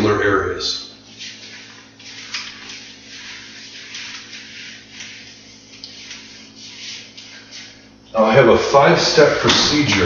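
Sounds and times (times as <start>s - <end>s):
eraser rubbing whiteboard: 1.1s - 7.9s.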